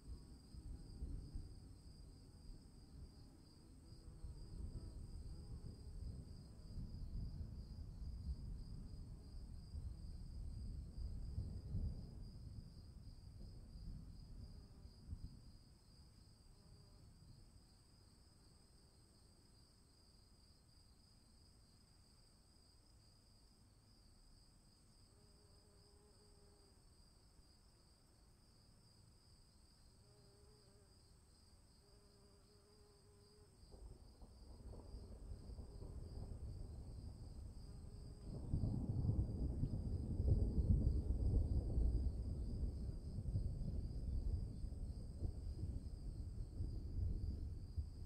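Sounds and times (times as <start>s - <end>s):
crickets chirring: 0.0s - 48.0s
distant thunder rumbling: 38.2s - 48.0s.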